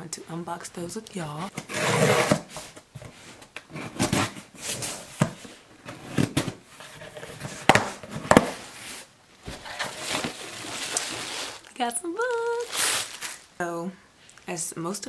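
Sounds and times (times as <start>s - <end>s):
cardboard box being opened: 3.7s - 11.7s.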